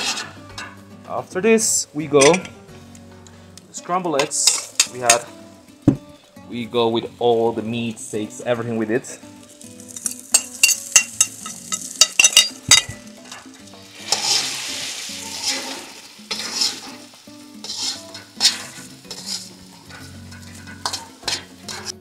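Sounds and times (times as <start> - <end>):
rice sizzling in a wok: 0.0 - 0.8, 3.3 - 5.8, 7.6 - 22.0
metal utensils scraping a wok: 0.0 - 0.9, 4.2 - 5.3, 9.4 - 22.0.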